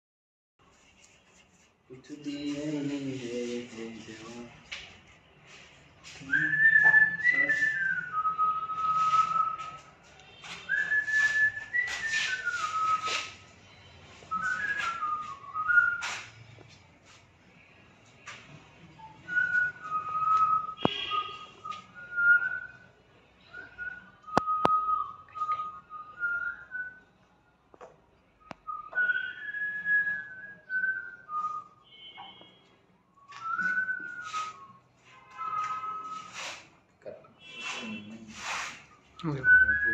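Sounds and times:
person whistling a slow tune: 0:05.5 - 0:13.4, 0:14.3 - 0:16.3, 0:19.0 - 0:22.8, 0:23.4 - 0:27.0, 0:28.4 - 0:31.9, 0:33.2 - 0:36.6, 0:39.2 - 0:39.9.

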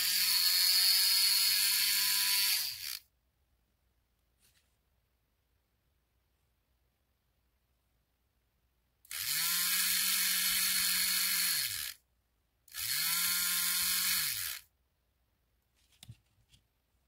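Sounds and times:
small motor whirring: 0:00.0 - 0:03.0, 0:09.1 - 0:12.0, 0:12.7 - 0:14.7.

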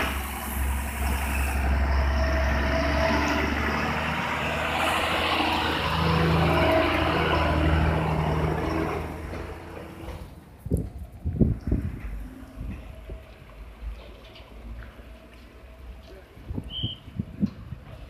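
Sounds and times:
diesel truck engine droning: 0:00.0 - 0:10.6.

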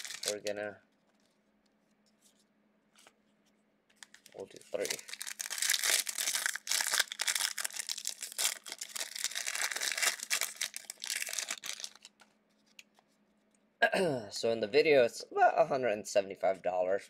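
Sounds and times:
card pack wrappers crinkling: 0:00.0 - 0:00.5, 0:04.0 - 0:12.8.

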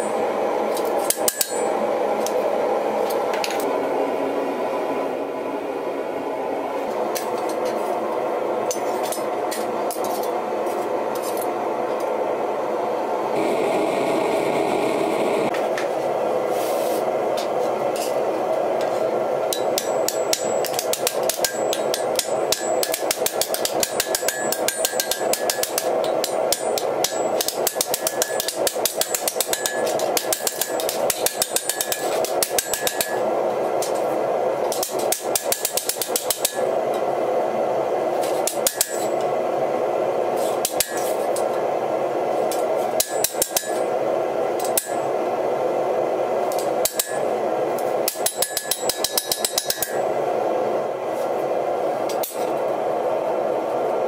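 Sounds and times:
hammer striking iron on anvil: 0:01.0 - 0:01.7, 0:19.5 - 0:33.2, 0:34.7 - 0:36.7, 0:38.4 - 0:39.1, 0:40.6 - 0:41.1, 0:43.0 - 0:43.9, 0:44.6 - 0:45.0, 0:46.6 - 0:47.3, 0:48.0 - 0:50.0
steady rushing noise: 0:12.3 - 0:21.4.

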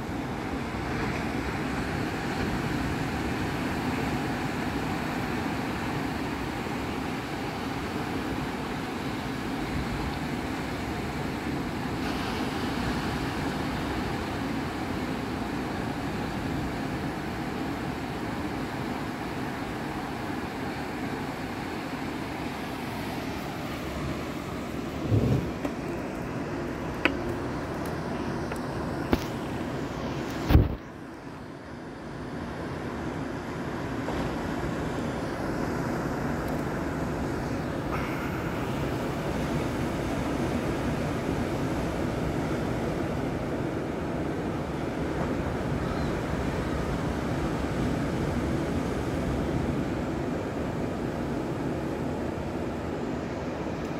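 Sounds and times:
ocean surf breaking: 0:00.0 - 0:53.9
wind on microphone: 0:24.6 - 0:25.8, 0:30.4 - 0:30.9.

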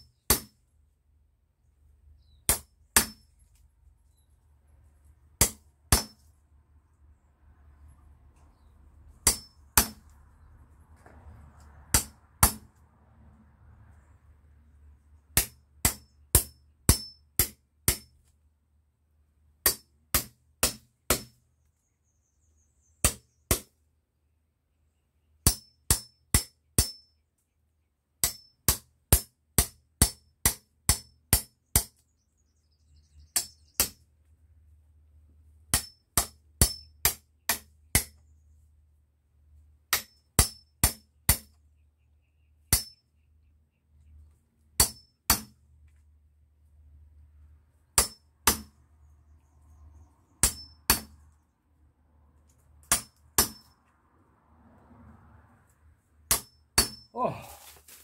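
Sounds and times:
wood splitting: 0:00.1 - 0:00.6, 0:02.4 - 0:03.6, 0:05.4 - 0:06.3, 0:09.2 - 0:10.2, 0:11.6 - 0:12.8, 0:44.8 - 0:45.6, 0:48.0 - 0:48.8, 0:50.4 - 0:51.3, 0:52.5 - 0:53.8, 0:56.3 - 0:58.0
hammer striking metal blade: 0:09.2 - 0:10.0, 0:15.4 - 0:18.1, 0:42.7 - 0:43.0, 0:44.8 - 0:45.5, 0:48.0 - 0:48.7, 0:50.4 - 0:51.2, 0:52.8 - 0:53.7, 0:56.3 - 0:57.1.

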